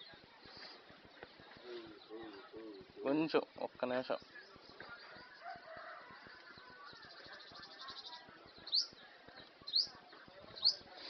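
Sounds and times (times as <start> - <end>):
faint outdoor background: 0.0 - 11.0
bird chirping: 6.6 - 11.0.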